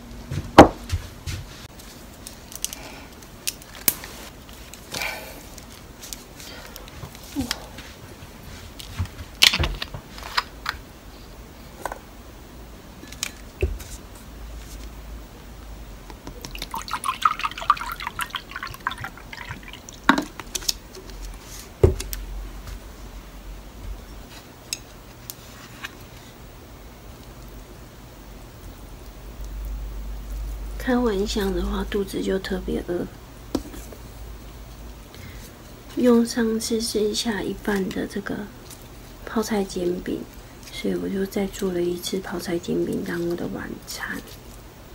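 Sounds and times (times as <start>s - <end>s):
drink pouring into glass: 16.4s - 20.4s.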